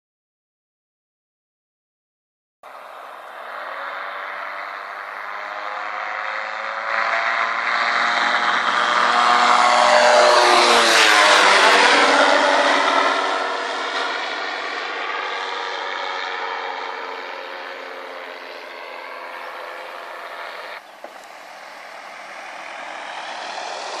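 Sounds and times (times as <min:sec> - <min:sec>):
microlight engine and propeller: 0:02.7 - 0:24.0.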